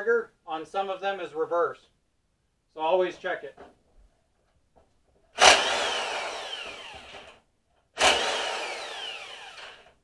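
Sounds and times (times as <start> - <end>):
electric impact wrench whine: 5.4 - 7.4, 8.0 - 10.0.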